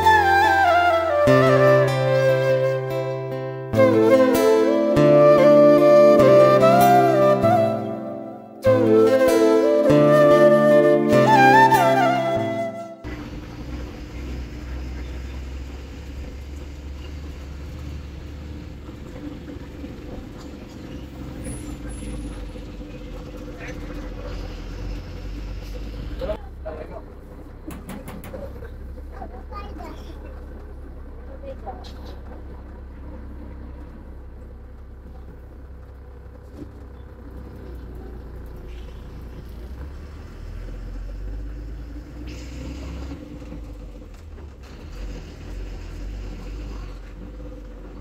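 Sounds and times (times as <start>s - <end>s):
diesel bus engine drone: 0.0s - 48.0s
road rumble: 0.0s - 48.0s
constant hum: 11.3s - 39.9s.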